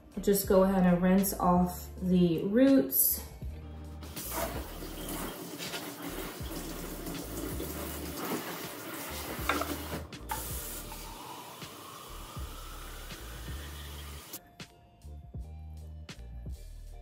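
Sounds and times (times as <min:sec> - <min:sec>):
faucet running into sink: 0:04.0 - 0:14.4.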